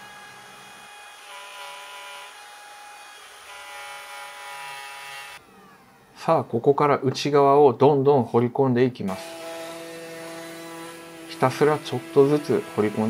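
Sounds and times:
electric router whining: 0.0 - 6.2, 9.1 - 13.0.

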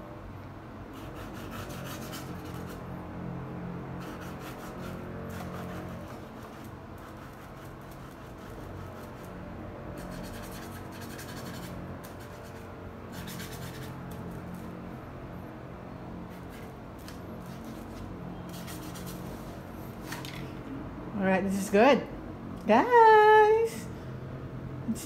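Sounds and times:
paintbrush scratching on canvas: 1.0 - 2.8, 4.0 - 9.4, 10.0 - 14.6, 16.3 - 19.6.

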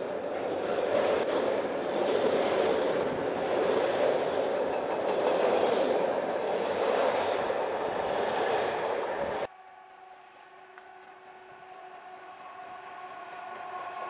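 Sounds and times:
freight train wagons rumbling: 0.0 - 9.5
distant diesel locomotive hum: 0.0 - 14.0.

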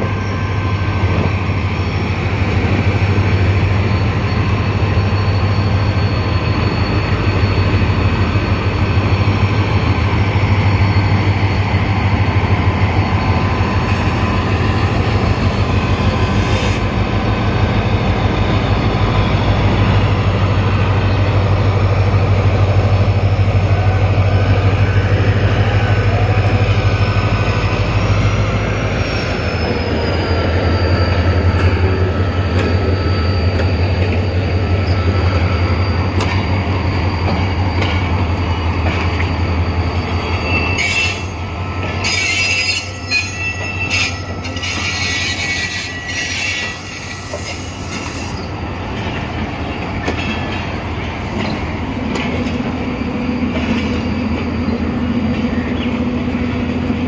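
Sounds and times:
diesel locomotive engine drone: 0.0 - 57.0.

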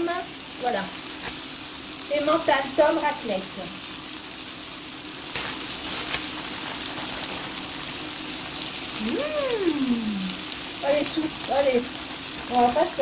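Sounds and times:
food sizzling in frying pan: 0.0 - 13.0
person humming: 9.0 - 10.4.

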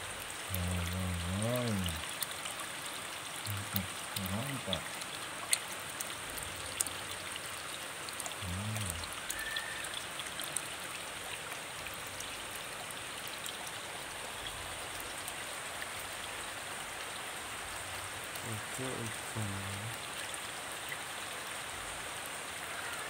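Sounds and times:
rain pattering on pond: 0.0 - 23.0
water trickling: 0.0 - 23.0.

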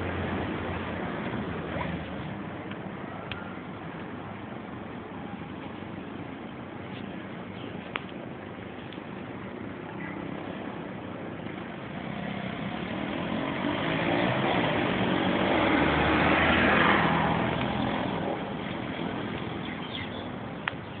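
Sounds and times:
vehicle passing: 11.6 - 20.1.

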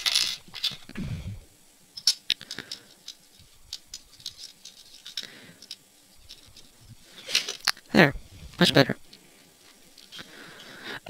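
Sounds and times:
plastic parts clicking and scraping: 0.0 - 1.0, 2.0 - 7.9, 9.1 - 10.8.

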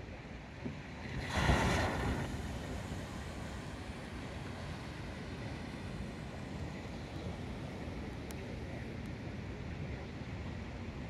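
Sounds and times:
surf washing: 1.0 - 10.9.

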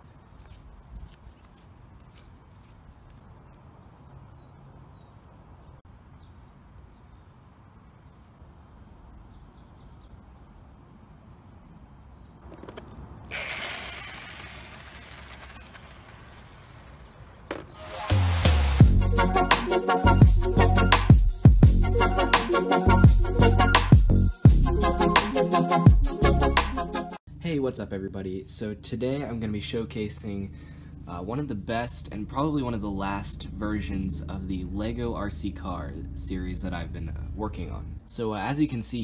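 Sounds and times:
bird chirps: 3.1 - 10.7
rc car passing with motor whine: 12.7 - 17.6.

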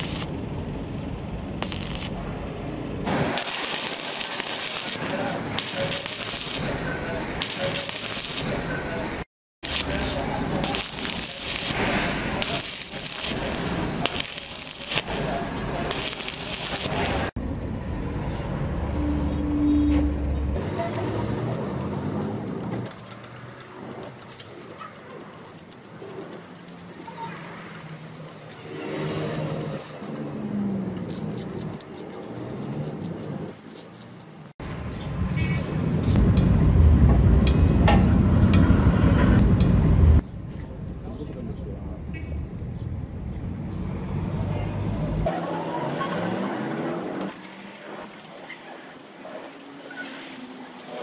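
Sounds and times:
welding arc crackling: 0.0 - 0.4, 1.6 - 2.2, 3.0 - 9.0, 9.6 - 17.4, 20.6 - 34.1, 45.3 - 51.0
metal rod tapping weld slag: 9.6 - 15.2.

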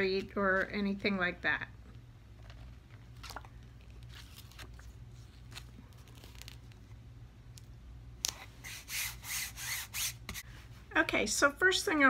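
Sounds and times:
stencil rustling and crinkling: 2.0 - 7.1.

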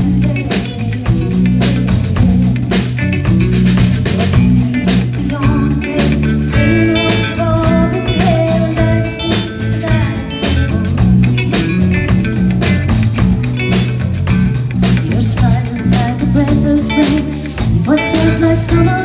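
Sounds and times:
bass guitar: 0.0 - 19.0
drum kit beat: 0.0 - 19.0
electric guitar: 0.0 - 19.0.

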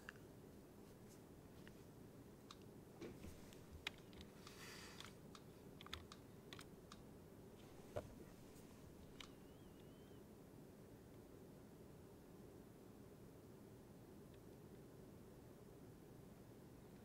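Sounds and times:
low room hum: 0.0 - 17.0
keyboard and mouse clicks: 3.5 - 7.0, 9.0 - 9.9
soft rustle: 7.6 - 9.2.

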